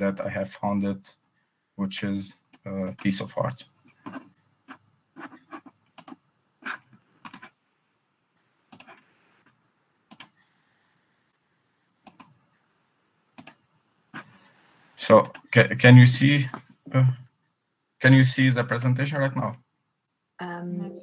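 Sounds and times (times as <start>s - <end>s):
computer mouse clicks: 5.9s - 6.2s, 7.2s - 7.5s, 8.7s - 10.4s, 12.0s - 12.4s, 13.4s - 13.6s, 15.2s - 15.5s.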